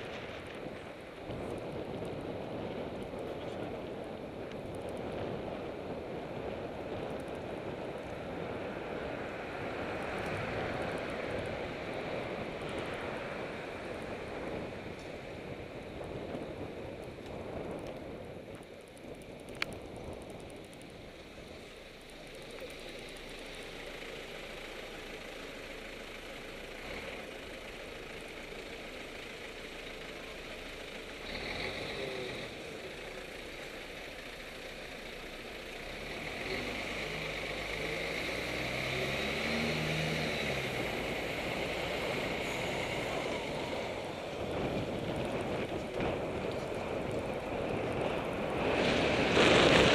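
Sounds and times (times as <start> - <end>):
car and bus engines: 0.0 - 49.9
wind on microphone: 43.0 - 49.9.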